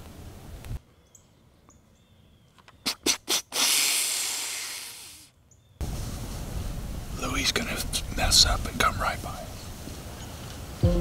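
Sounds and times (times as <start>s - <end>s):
deer hissing breath: 2.8s - 5.3s.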